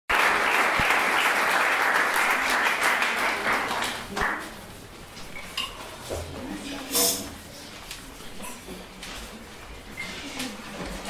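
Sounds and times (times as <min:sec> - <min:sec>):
audience applause: 0:00.1 - 0:04.5.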